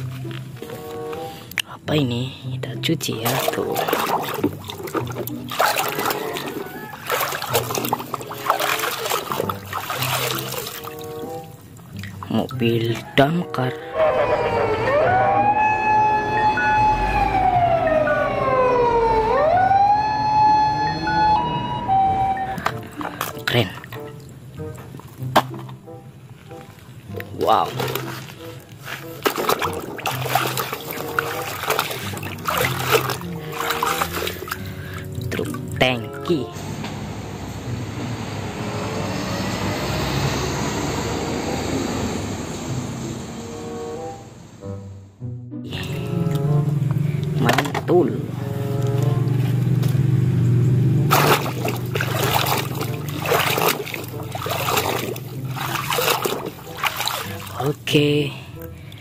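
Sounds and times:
fire truck siren wailing: 0:13.8 - 0:22.8, 0:36.6 - 0:44.5
short higher tones: 0:13.8 - 0:22.8.

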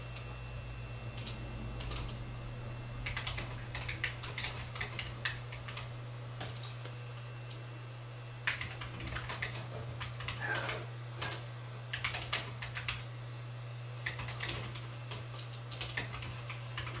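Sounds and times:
low hum: 0:00.0 - 0:10.3.

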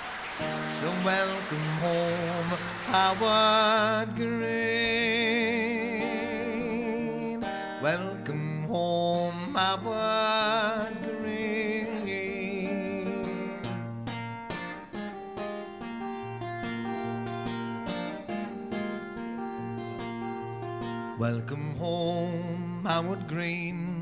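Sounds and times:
man singing with vibrato: 0:00.4 - 0:14.2, 0:21.0 - 0:24.0
acoustic guitar fingerpicking: 0:00.4 - 0:24.0.

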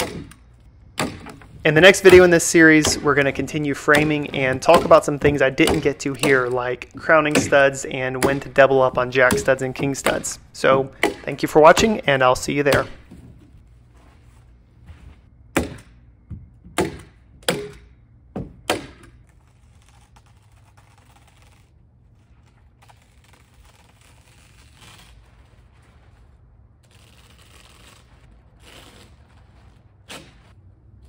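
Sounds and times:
plastic wrap rustling: 0:19.3 - 0:30.6.

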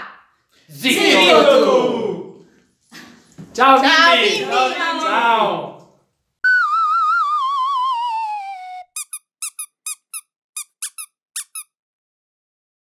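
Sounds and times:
wobbling whistle sliding downward: 0:06.4 - 0:09.2
short cartoon squeaks: 0:08.7 - 0:11.8.

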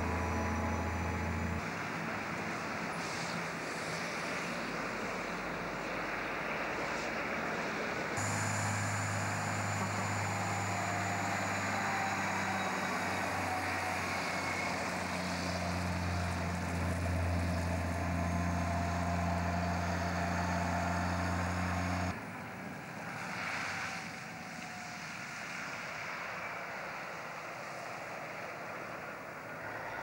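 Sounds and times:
diesel truck engine droning: 0:00.0 - 0:06.6, 0:08.1 - 0:22.2
road and tyre noise: 0:00.0 - 0:30.0.

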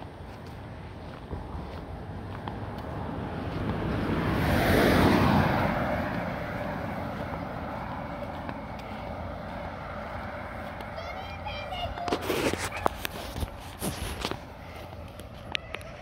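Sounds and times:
pickup truck driving past: 0:01.4 - 0:11.5.

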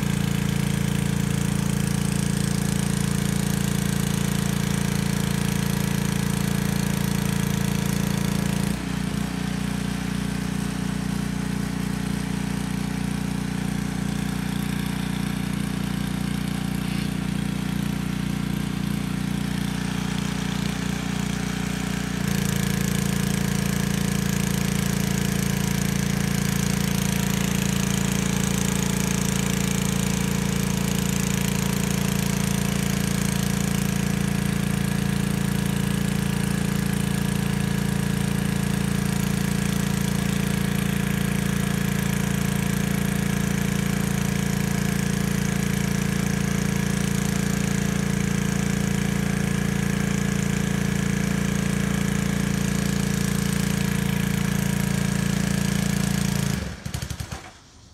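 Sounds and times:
pressure washer engine drone: 0:00.0 - 0:57.9.

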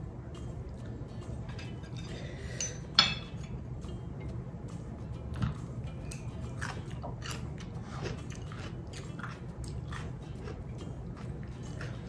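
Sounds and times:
person chewing and crunching food: 0:04.7 - 0:12.0.

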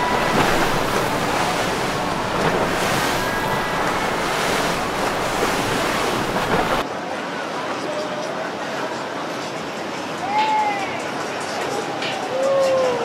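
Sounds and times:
water washing: 0:00.0 - 0:06.8
wind on microphone: 0:00.0 - 0:06.8.

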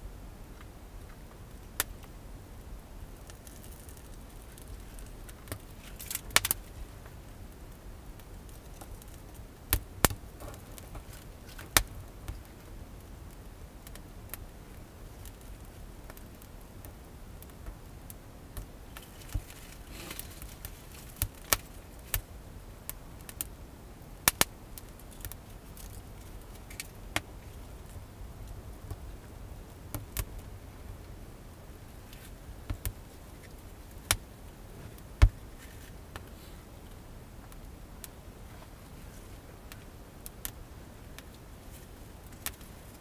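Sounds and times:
wood fire crackling and snapping: 0:00.4 - 0:43.0.

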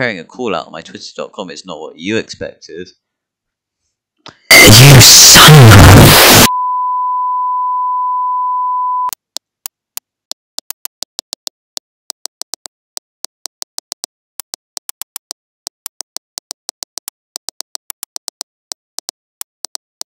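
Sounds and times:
high pure test-tone beep: 0:04.5 - 0:09.1.

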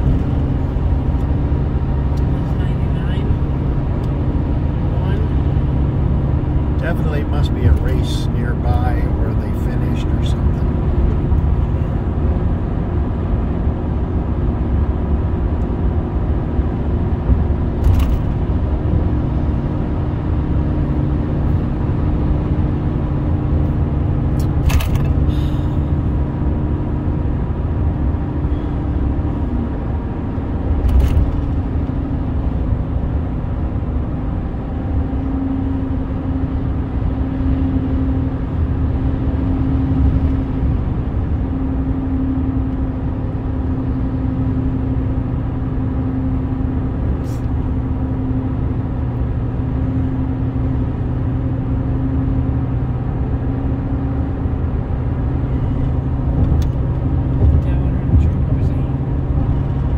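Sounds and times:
car cabin road noise: 0:00.0 - 0:59.9.

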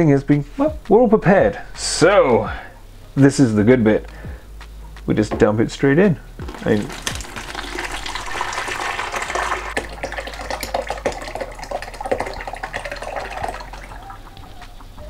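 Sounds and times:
liquid splashing pour: 0:06.4 - 0:14.3.

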